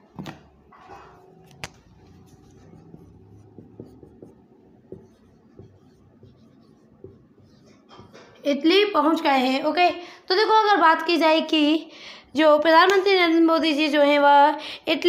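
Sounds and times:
marker scratching on whiteboard: 1.0s - 8.8s.

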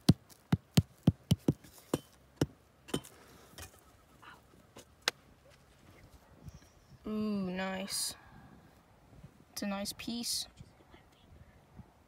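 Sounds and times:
hand pick tapping rock: 0.0s - 3.1s.

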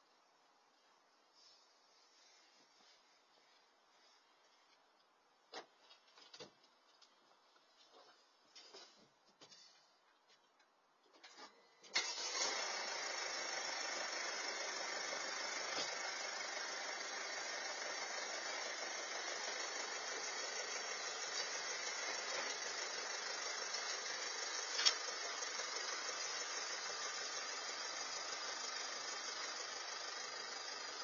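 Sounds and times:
steady hiss: 0.0s - 4.8s, 12.6s - 31.0s
faint car engine running: 11.1s - 31.0s.

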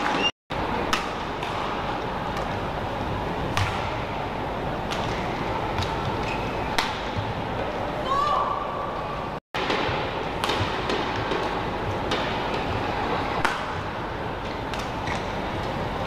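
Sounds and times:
indoor hall hum: 0.0s - 16.0s
racket hitting shuttlecock: 3.5s - 4.0s, 4.9s - 7.2s, 9.6s - 12.7s.

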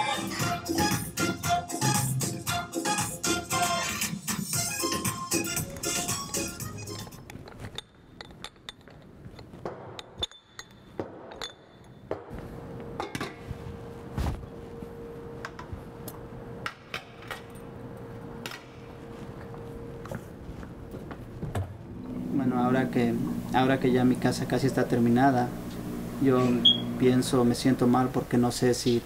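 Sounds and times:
glassware and metal dishes clinking: 7.3s - 12.1s
steady hum: 12.3s - 29.0s.

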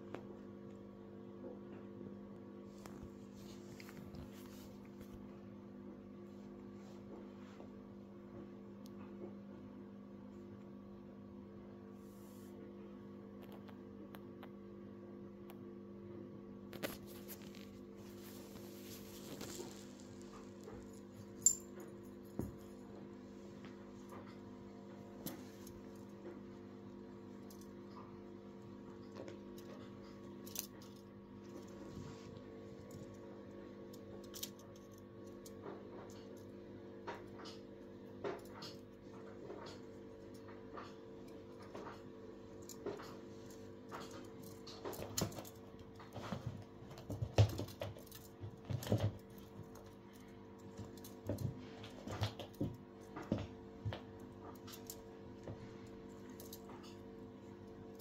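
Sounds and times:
steady low hum: 0.0s - 58.0s
cat playing on carpet rustles: 2.6s - 5.4s, 16.7s - 21.5s, 31.4s - 33.4s.

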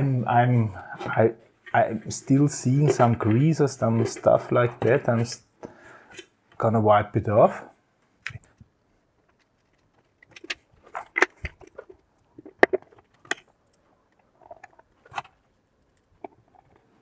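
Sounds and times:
plastic and metal parts clicking: 9.2s - 16.9s.

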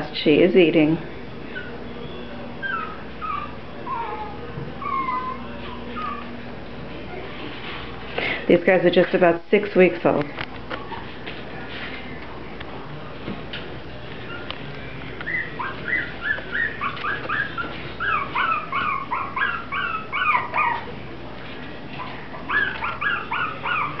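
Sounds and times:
puppies whimpering: 1.4s - 7.6s, 14.1s - 21.0s, 21.9s - 24.0s.

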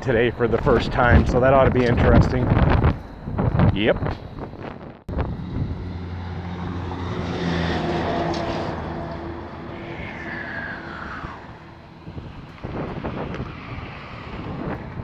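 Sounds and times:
whine sliding down in pitch: 4.1s - 14.5s
vehicle passing by: 5.1s - 15.0s.

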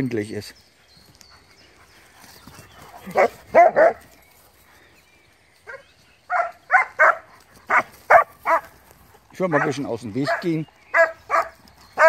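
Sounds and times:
dogs barking: 2.9s - 4.1s, 5.6s - 8.8s, 9.4s - 12.0s.

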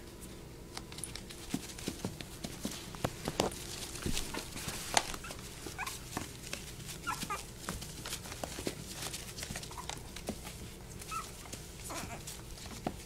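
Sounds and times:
puppy claws scratching plastic: 1.2s - 13.0s
puppies squeaking and whimpering: 5.1s - 6.2s, 7.0s - 7.6s, 9.6s - 10.2s, 11.0s - 12.4s.

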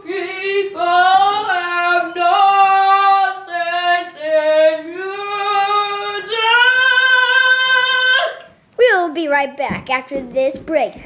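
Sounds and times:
boy singing opera-style: 0.0s - 8.6s.

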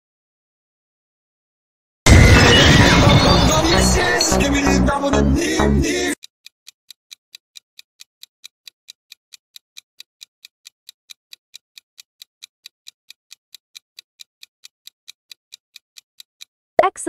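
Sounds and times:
ticking countdown timer: 6.9s - 17.0s.

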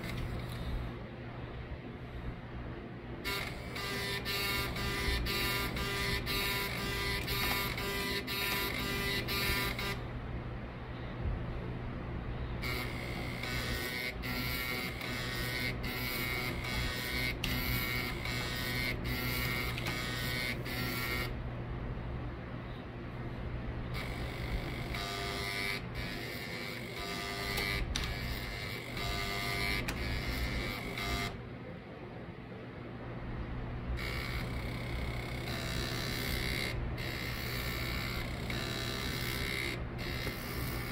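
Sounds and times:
floppy drive stepper motor buzzing: 0.0s - 1.0s, 3.2s - 10.3s, 12.6s - 21.5s, 23.8s - 31.5s, 33.9s - 40.9s.

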